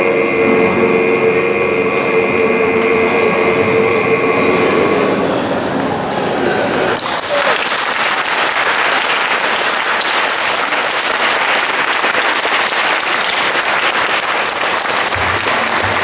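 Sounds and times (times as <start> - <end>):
audience applauding: 6.8 - 16.0.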